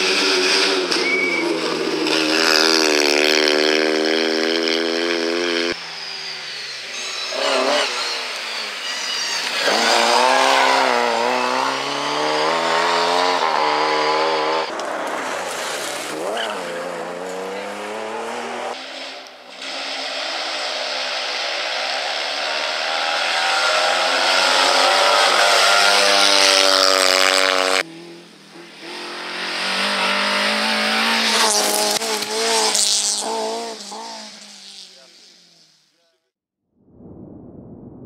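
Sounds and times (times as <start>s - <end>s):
small car engine at high revs: 0.0s - 35.9s
car accelerating away: 7.3s - 18.8s, 19.6s - 35.7s.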